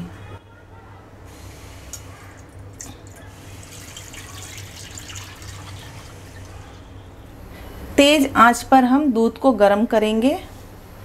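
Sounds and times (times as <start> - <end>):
milk pouring into a pan: 3.0 - 6.6.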